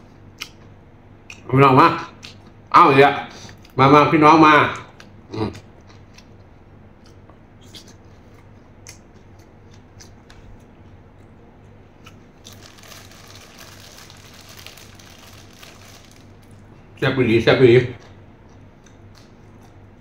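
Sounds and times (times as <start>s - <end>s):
chewing with wet mouth clicks: 0.4s - 0.6s, 1.2s - 1.5s, 2.2s - 2.6s, 4.8s - 11.4s, 18.0s - 20.0s.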